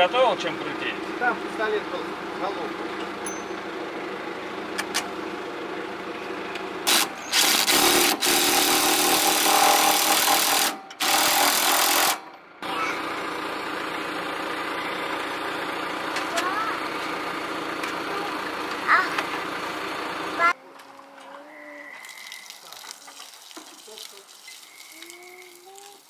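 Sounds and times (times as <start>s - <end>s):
steady mechanical hum: 0.0s - 22.0s
pneumatic impact wrench: 6.8s - 12.3s.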